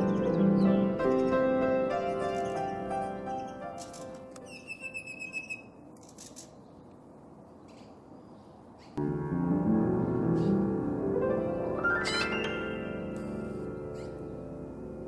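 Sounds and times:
background piano music: 0:00.0 - 0:05.0, 0:09.0 - 0:15.0.

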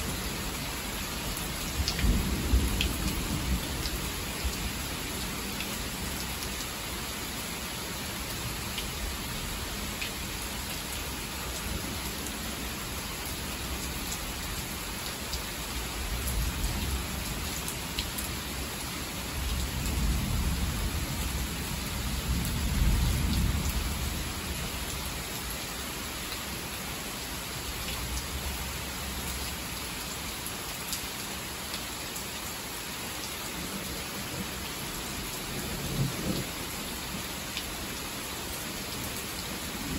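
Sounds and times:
heavy rain pouring: 0:00.0 - 0:39.9
low rumble of thunder: 0:01.7 - 0:04.7, 0:19.4 - 0:24.6, 0:35.5 - 0:36.5.

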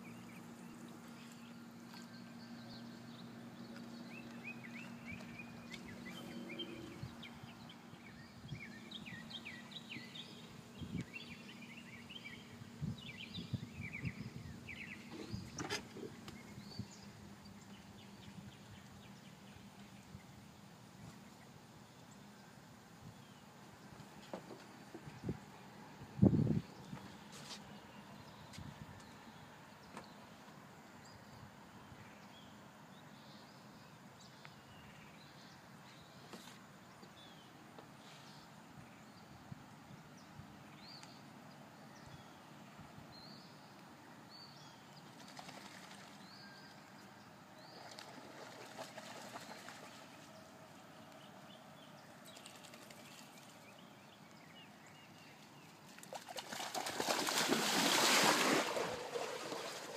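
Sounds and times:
dog splashing through water: 0:56.0 - 0:59.9.

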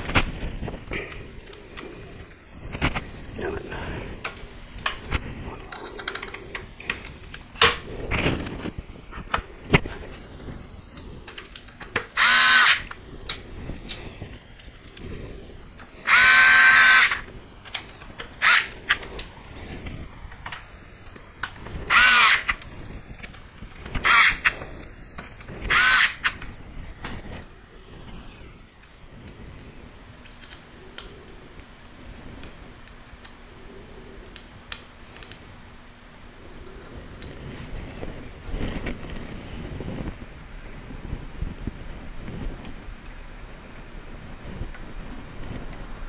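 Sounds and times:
metal parts clicking: 0:11.0 - 0:14.0, 0:15.8 - 0:27.2
electric screwdriver whirring: 0:11.9 - 0:13.0, 0:16.0 - 0:19.2, 0:21.4 - 0:24.6, 0:25.2 - 0:26.5.

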